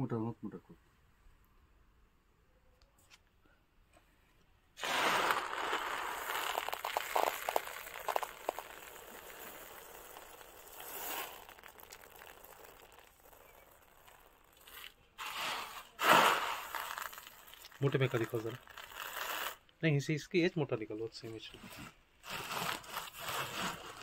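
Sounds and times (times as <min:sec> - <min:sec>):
peppercorns rustling and rattling: 0:04.8 - 0:19.7, 0:21.1 - 0:24.0.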